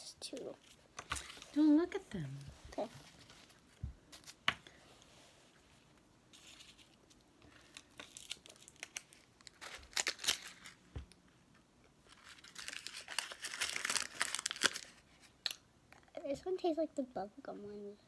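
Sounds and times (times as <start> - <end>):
plastic wrapper crinkling: 6.3 - 10.9, 12.0 - 15.6.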